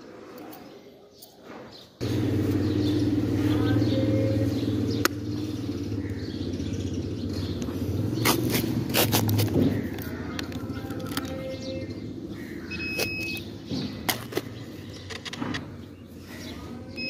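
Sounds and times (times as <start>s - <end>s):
low mechanical hum: 2.0s - 15.8s
handling clicks and knocks: 7.4s - 11.8s, 12.9s - 15.9s.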